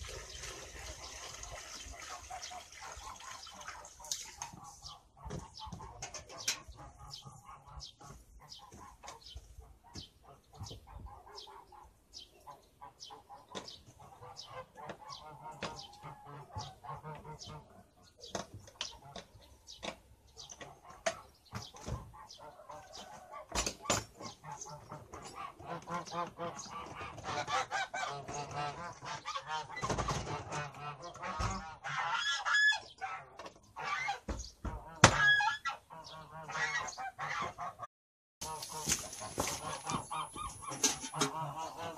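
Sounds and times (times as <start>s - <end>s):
geese honking: 10.1s - 17.9s, 24.4s - 41.9s.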